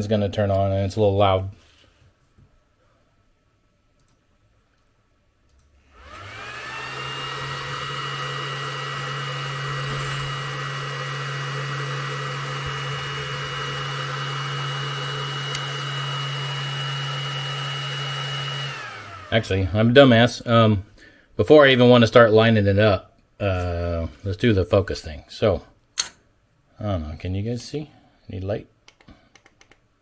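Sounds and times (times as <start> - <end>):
laser cooling fan whirring: 6.0 - 20.0.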